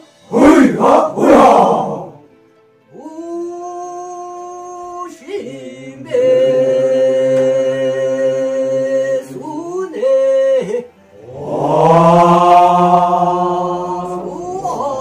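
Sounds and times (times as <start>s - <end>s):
unaccompanied singing held notes: 5.2s - 15.0s.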